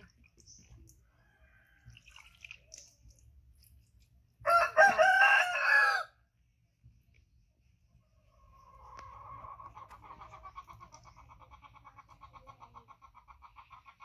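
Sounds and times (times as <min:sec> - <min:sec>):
rooster crowing: 0:04.4 - 0:06.2.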